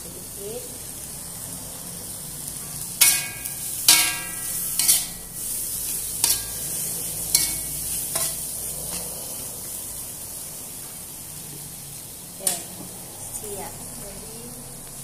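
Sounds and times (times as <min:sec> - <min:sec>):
oil sizzling in a wok: 0:00.0 - 0:15.0
spatula knocking on a pan: 0:03.0 - 0:05.0
metal spatula scraping a pan: 0:03.0 - 0:09.8.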